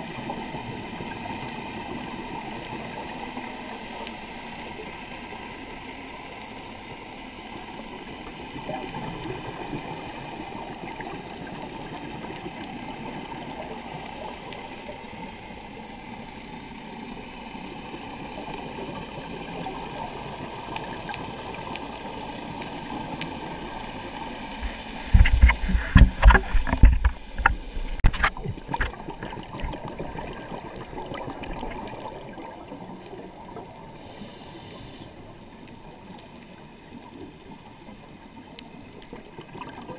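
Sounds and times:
underwater rushing: 0.0 - 39.9
gurgling bubble bursts: 28.1 - 33.5.

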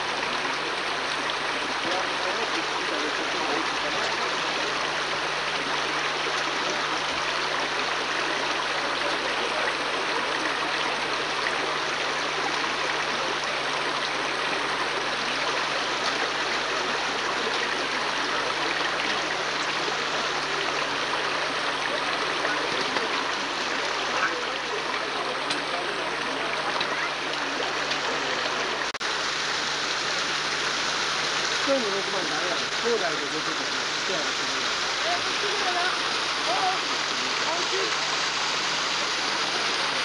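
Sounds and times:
creek running over rocks: 0.0 - 40.0.

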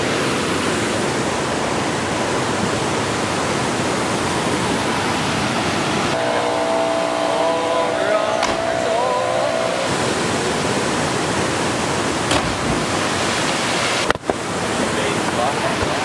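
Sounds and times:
held tones: 6.2 - 9.9
water rushing over rock: 9.9 - 16.0.

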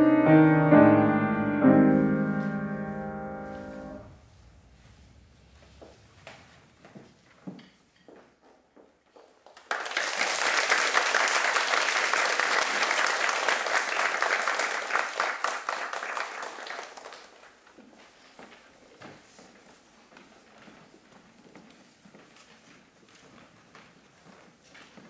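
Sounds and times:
audience applauding: 9.4 - 17.6.

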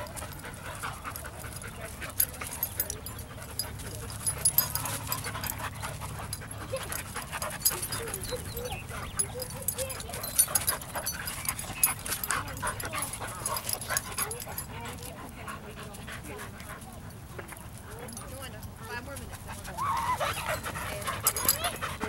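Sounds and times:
dogs whining: 0.0 - 15.2, 19.6 - 22.0
dogs panting: 0.0 - 22.0
paws scuffling on gravel: 0.0 - 22.0.

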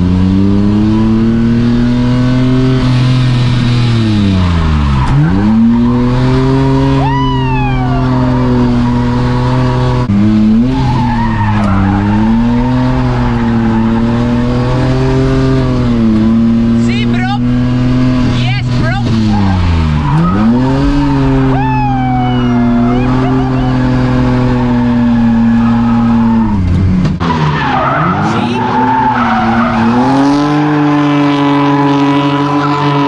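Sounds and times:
car engine revving high: 0.0 - 33.0
tyre squeal: 10.6 - 15.0, 19.1 - 26.7.

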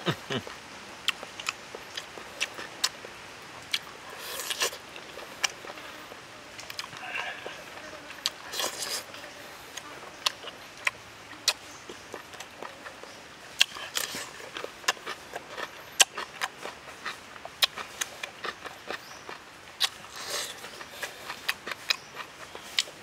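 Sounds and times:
chewing with lip-smacking: 6.6 - 7.6, 9.7 - 23.0.

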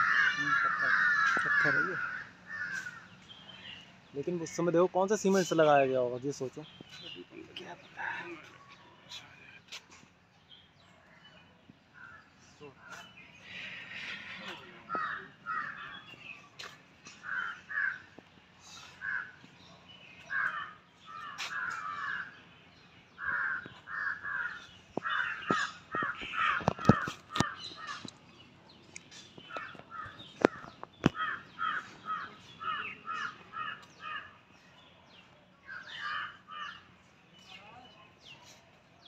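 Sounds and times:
crows cawing: 0.0 - 3.8, 12.0 - 19.6, 20.2 - 22.4, 23.1 - 28.1, 29.4 - 34.4, 35.7 - 36.9.

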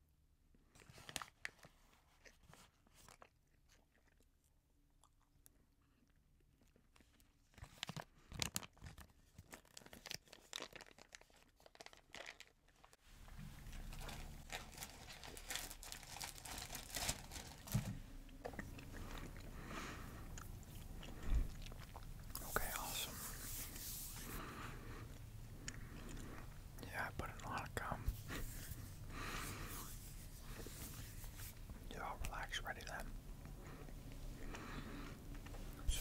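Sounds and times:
chewing gum: 0.7 - 12.6, 18.3 - 23.1, 24.4 - 28.4.

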